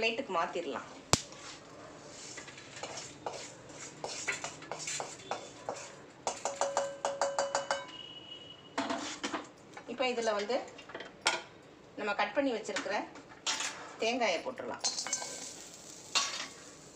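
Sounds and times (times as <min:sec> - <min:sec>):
spatula scraping a pan: 0:01.5 - 0:06.6, 0:08.8 - 0:09.3
ringing taps on pan rim: 0:06.4 - 0:08.0.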